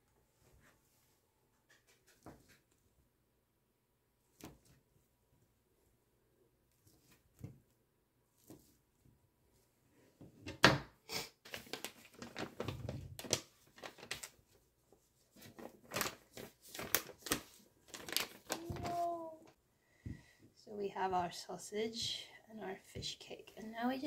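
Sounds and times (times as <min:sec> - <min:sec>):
plastic packet crinkling: 0:11.5 - 0:14.5, 0:15.4 - 0:19.5.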